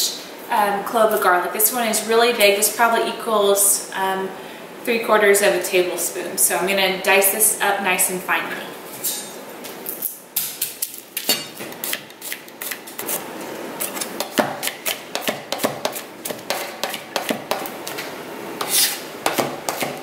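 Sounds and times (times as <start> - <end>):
knife chopping on cutting board: 13.9 - 18.0, 18.6 - 20.0.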